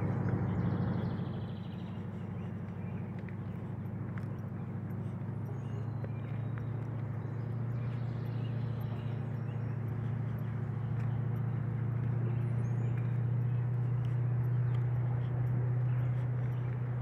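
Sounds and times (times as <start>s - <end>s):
faint bird chirps: 0.0s - 16.9s
steady low hum: 0.0s - 17.0s.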